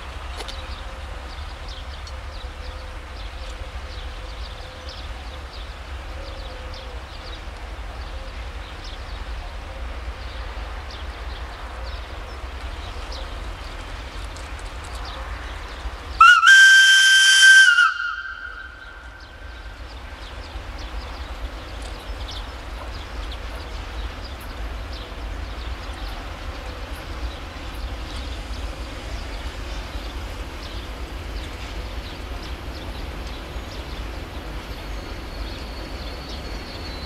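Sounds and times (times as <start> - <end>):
locomotive air whistle blast: 16.2 - 19.1.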